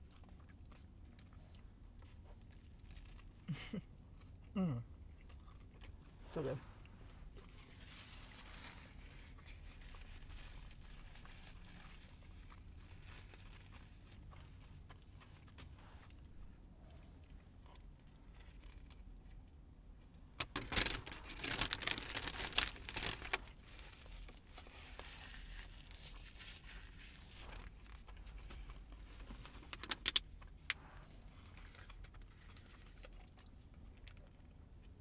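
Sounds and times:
packaging crinkling and rustling: 7.4s - 14.4s, 20.4s - 33.2s
packaging crackles: 20.4s - 28.3s, 29.3s - 30.3s.

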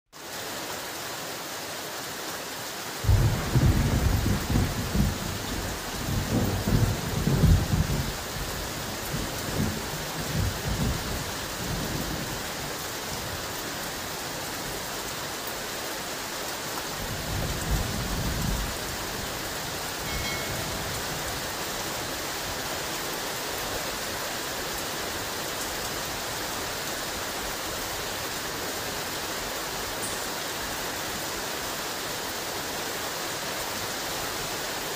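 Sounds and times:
heavy rain: 0.1s - 34.9s
thunder rumbling: 3.0s - 12.5s, 17.0s - 22.6s.

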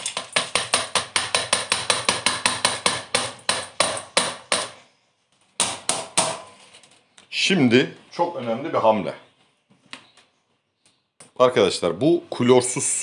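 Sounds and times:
strainer tapping on steel bowl: 0.0s - 3.0s.

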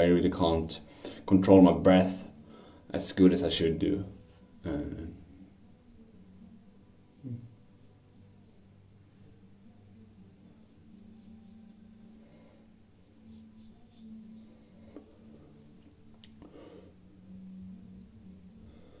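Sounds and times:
razor scraping stubble: 7.0s - 9.0s, 9.7s - 11.9s, 12.9s - 15.2s, 17.4s - 19.0s.

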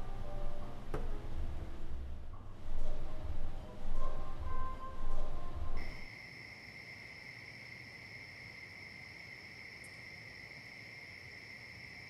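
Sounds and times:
crickets trilling: 5.8s - 12.0s.

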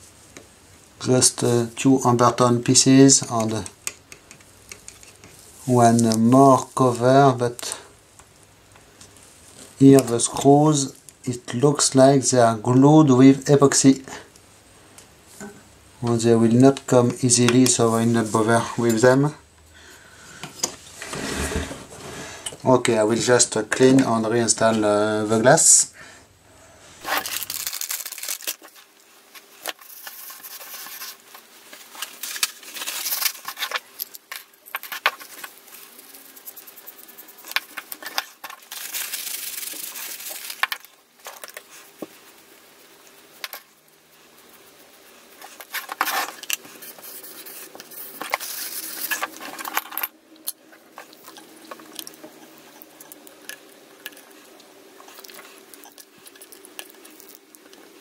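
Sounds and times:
paper tissue rubbing glass: 41.6s - 49.6s.

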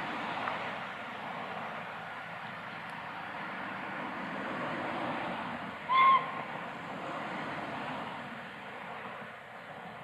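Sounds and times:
steam whistle blast: 5.9s - 6.3s.

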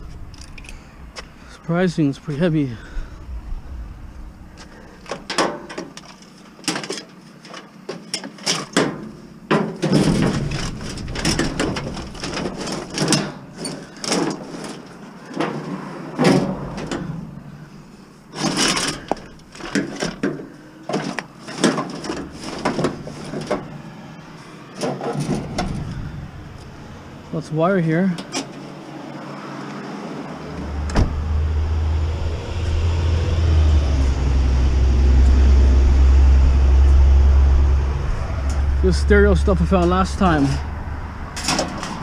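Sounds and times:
metal knocks and clunks: 4.6s - 14.8s.

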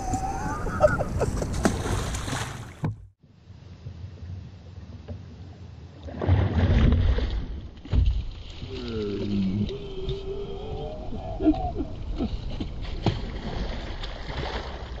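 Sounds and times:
fish thrashing and water splashing: 1.2s - 2.9s, 11.7s - 15.0s.

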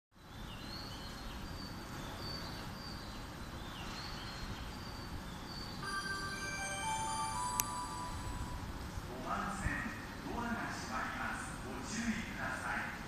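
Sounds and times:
station platform hum: 5.1s - 13.0s
electronic departure melody: 5.8s - 9.1s.

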